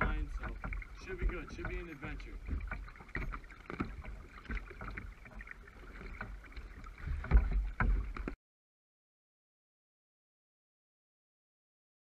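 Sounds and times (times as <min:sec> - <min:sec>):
paddle splashing water: 0:00.0 - 0:08.4.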